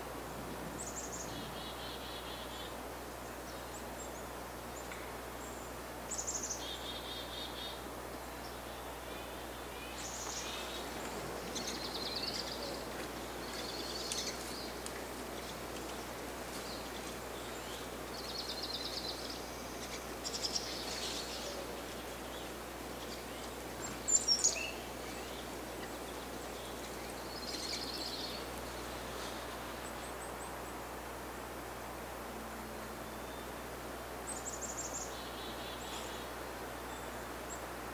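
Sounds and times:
faint outdoor hiss: 0:00.0 - 0:37.9
songbirds chirping and trilling: 0:00.0 - 0:37.9.

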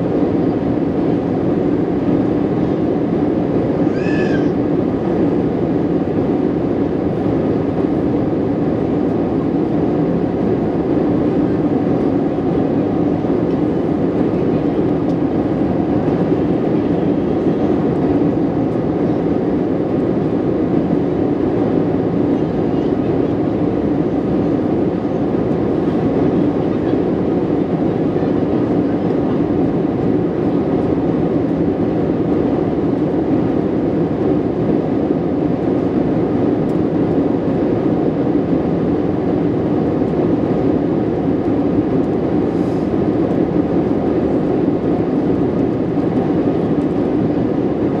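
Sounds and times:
airliner cabin engine drone: 0:00.0 - 0:48.0.

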